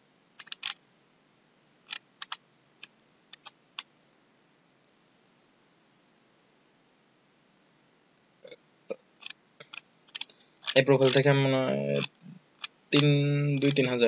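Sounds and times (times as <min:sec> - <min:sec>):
faint hiss: 0:00.0 - 0:14.0
computer mouse clicking: 0:00.4 - 0:00.8, 0:01.8 - 0:03.9, 0:09.2 - 0:14.0.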